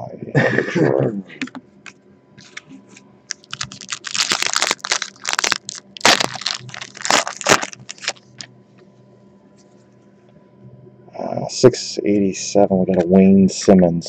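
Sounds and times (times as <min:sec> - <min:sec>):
packaging crinkling and tearing: 0:03.3 - 0:08.5.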